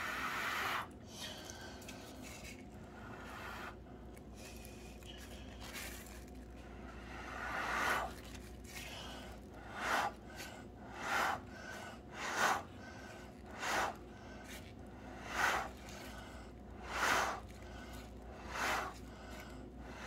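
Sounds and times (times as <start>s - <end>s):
person blowing puffs of breath: 7.0s - 20.0s.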